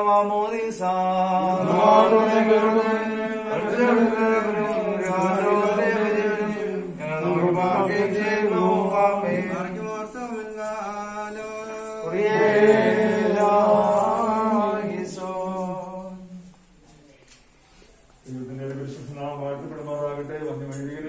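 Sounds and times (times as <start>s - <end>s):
voices chanting a hymn: 0.0s - 16.6s.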